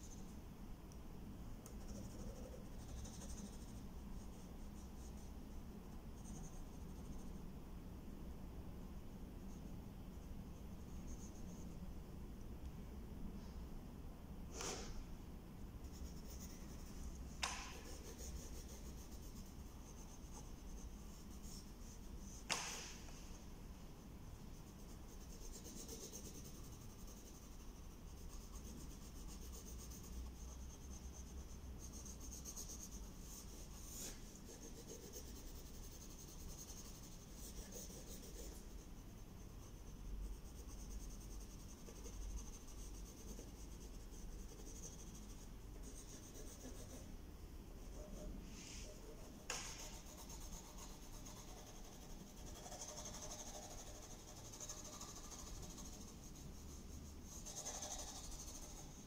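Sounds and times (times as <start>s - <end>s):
pencil scratching on paper: 1.7s - 5.4s, 15.8s - 22.7s, 24.4s - 47.1s, 47.8s - 59.0s.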